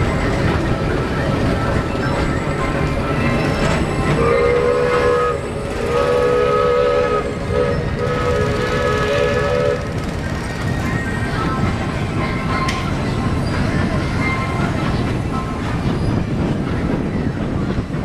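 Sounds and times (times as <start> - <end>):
ride car rumbling on track: 0.0 - 18.0
long horn-like tones: 4.0 - 10.0.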